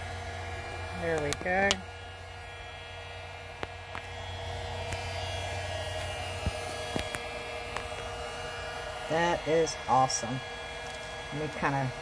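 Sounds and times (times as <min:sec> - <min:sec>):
low electrical hum: 0:00.0 - 0:12.0
phone handling clicks and taps: 0:06.4 - 0:08.1.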